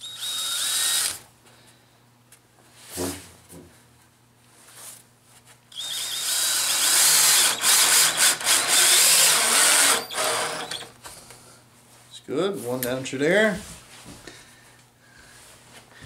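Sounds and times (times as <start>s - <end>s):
cordless drill boring into wood: 0.0s - 1.2s, 5.7s - 10.9s.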